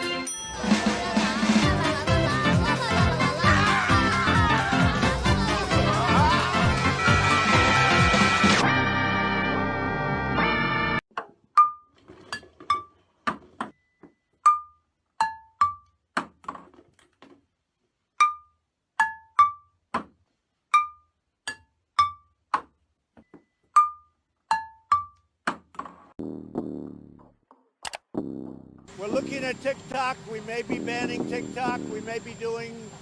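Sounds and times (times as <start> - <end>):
music: 0.0 - 11.0
ping-pong balls bouncing on pots: 11.1 - 16.6, 18.2 - 26.0.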